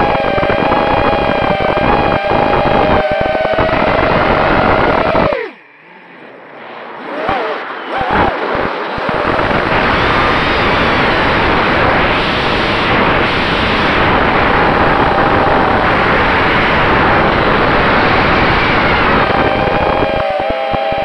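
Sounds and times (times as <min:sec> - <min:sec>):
wind rushing over microphone: 0:00.0 - 0:05.5, 0:06.6 - 0:21.0
faint electric motor whine: 0:00.0 - 0:21.0.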